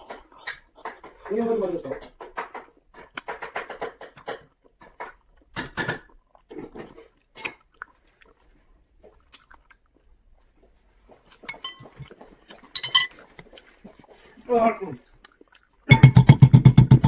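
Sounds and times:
person chewing close up: 0:02.7 - 0:16.3.

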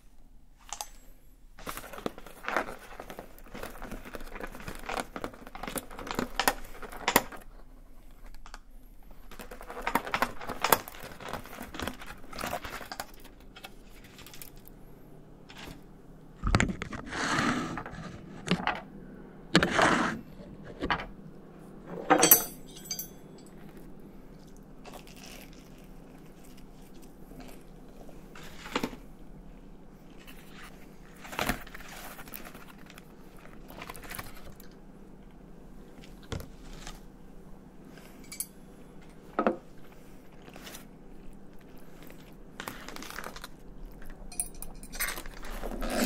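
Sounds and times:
low steady hum: 0:00.0 - 0:46.0
foil tin crinkling: 0:01.6 - 0:07.5, 0:09.1 - 0:14.7, 0:24.9 - 0:29.1, 0:30.1 - 0:34.8, 0:39.8 - 0:44.3
cutlery clinking on foil: 0:22.2 - 0:23.6, 0:44.0 - 0:45.7
chewing: 0:23.5 - 0:29.0.

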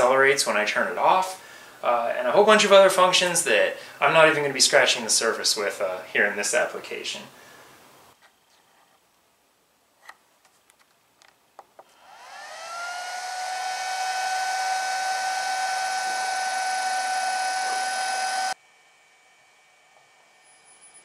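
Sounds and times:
electric motor whine: 0:11.9 - 0:21.0.

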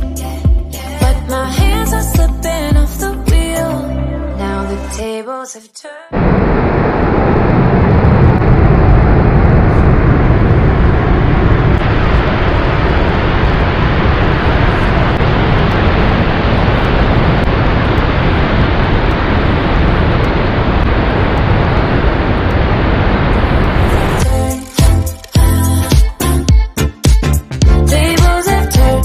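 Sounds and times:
background music: 0:00.0 - 0:05.3, 0:24.2 - 0:29.0.

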